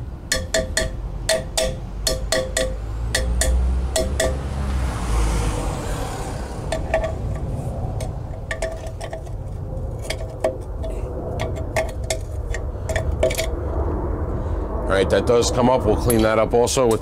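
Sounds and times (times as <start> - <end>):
low rumble: 2.7 - 17.0.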